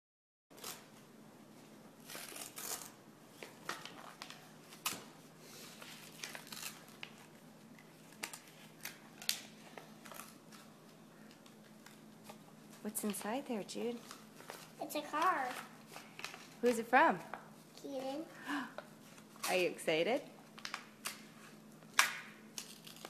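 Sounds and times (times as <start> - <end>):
paper envelope tearing: 2.0 - 3.0, 5.9 - 7.4
sharp paper snaps: 8.1 - 10.7, 20.6 - 23.0.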